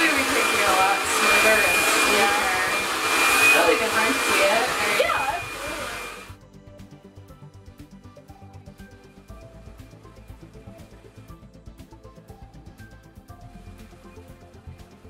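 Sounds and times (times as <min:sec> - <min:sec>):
hair dryer blowing: 0:00.0 - 0:06.4
quiet background music: 0:05.5 - 0:15.0.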